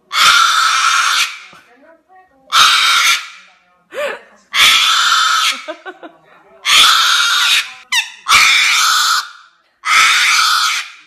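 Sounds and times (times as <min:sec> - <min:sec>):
cockatoo screeching: 0:00.1 - 0:01.5, 0:02.5 - 0:03.5, 0:04.5 - 0:05.7, 0:06.6 - 0:11.0.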